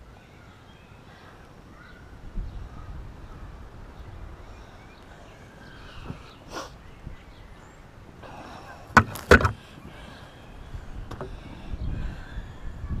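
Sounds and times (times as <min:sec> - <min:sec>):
low outdoor background: 0:00.0 - 0:13.0
sharp knocks: 0:09.0 - 0:09.6.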